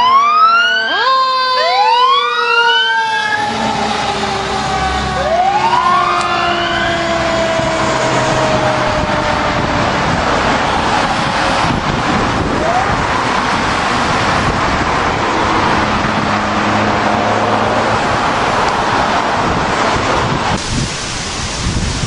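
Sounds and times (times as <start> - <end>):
faint siren tones: 0.0 - 11.1
rising siren whoop: 0.0 - 20.6
fire truck engine and road noise: 0.0 - 22.0.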